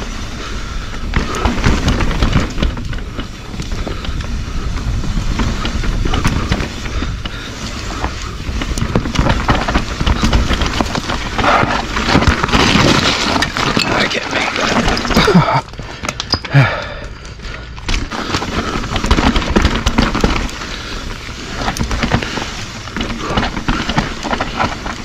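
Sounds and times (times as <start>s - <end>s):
bike rattling and knocking: 0.0s - 25.0s
bike tyres on dirt: 0.0s - 25.0s.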